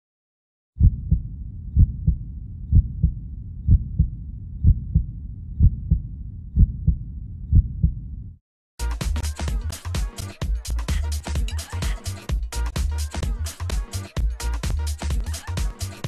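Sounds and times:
heartbeat double thump: 0:00.8 - 0:08.4
low rumble: 0:00.8 - 0:08.4.

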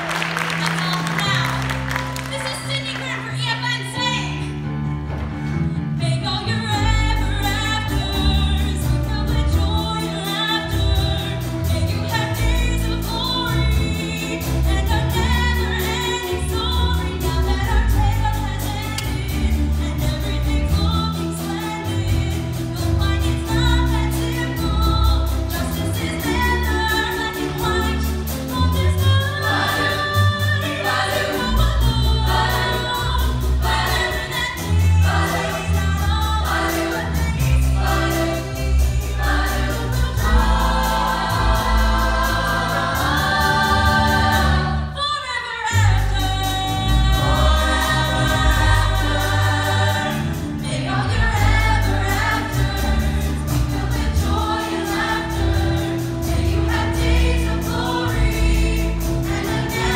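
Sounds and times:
pit band accompaniment: 0:00.0 - 0:59.9
cast singing on stage: 0:28.8 - 0:45.0, 0:46.5 - 0:59.9.

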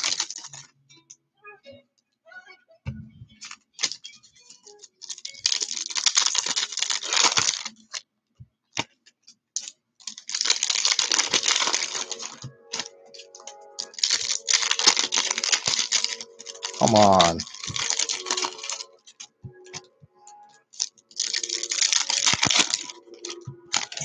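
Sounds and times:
plastic wrappers tearing and crinkling: 0:00.0 - 0:00.7, 0:03.5 - 0:08.0, 0:09.6 - 0:19.9, 0:20.7 - 0:24.0
cards clicking and tapping: 0:20.8 - 0:24.0.

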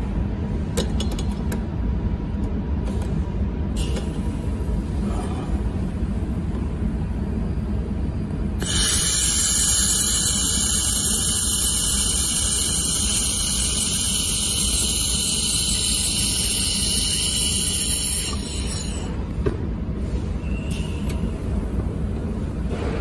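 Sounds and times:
laser welder hissing: 0:08.6 - 0:19.1.

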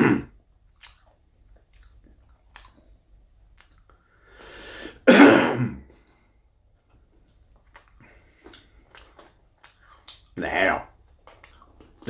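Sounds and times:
faint chewing and mouth clicks: 0:00.4 - 0:04.3, 0:05.9 - 0:12.0
drawn breath: 0:04.0 - 0:05.0
man coughing: 0:05.0 - 0:05.9.

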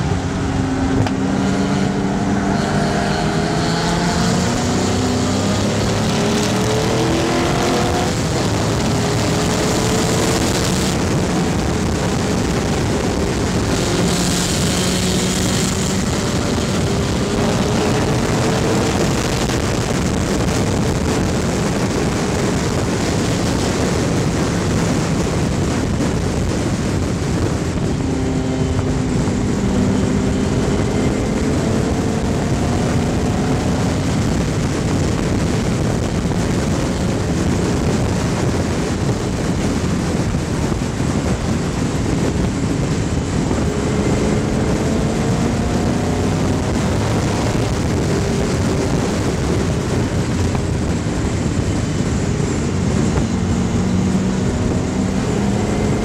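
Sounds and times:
race car engine revving: 0:00.0 - 0:56.0
wind rush over camera: 0:00.0 - 0:56.0.

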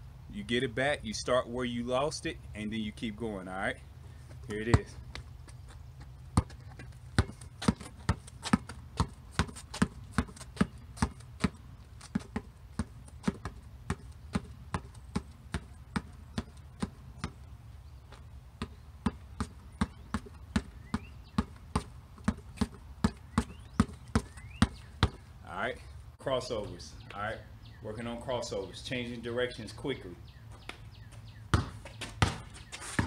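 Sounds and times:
basketball bouncing on concrete: 0:04.3 - 0:25.3, 0:30.5 - 0:33.0.

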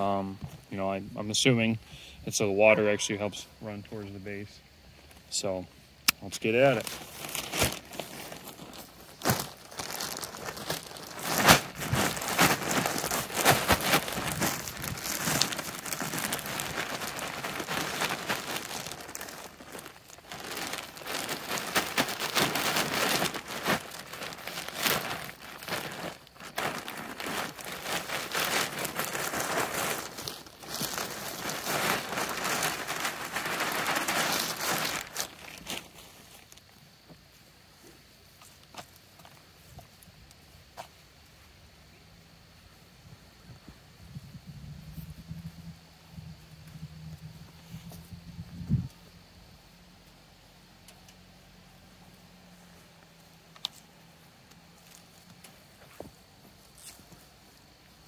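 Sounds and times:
plastic bags crinkling: 0:06.4 - 0:36.6
mulch pouring onto soil: 0:06.5 - 0:35.9.

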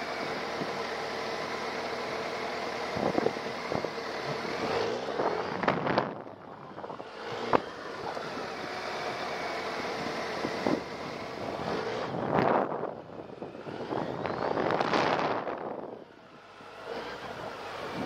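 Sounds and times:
motorcycle engine revving: 0:00.0 - 0:18.0
wind on microphone: 0:10.4 - 0:16.0.

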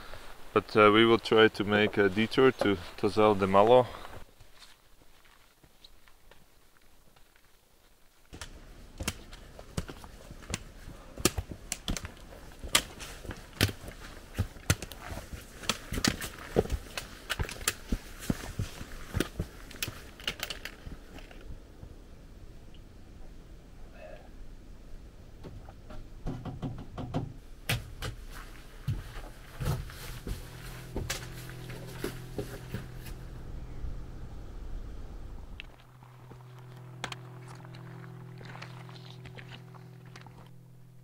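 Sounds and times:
footsteps on rocky trail: 0:01.7 - 0:21.4, 0:27.7 - 0:33.4, 0:35.6 - 0:40.6
handling knocks and rustles: 0:08.2 - 0:21.5, 0:25.4 - 0:33.4
trekking pole tips clicking on stone: 0:08.3 - 0:21.4.

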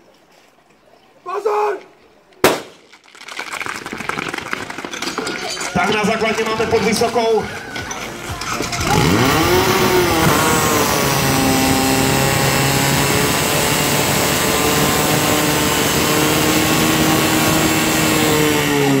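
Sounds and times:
fire pump engine running: 0:07.6 - 0:19.0.

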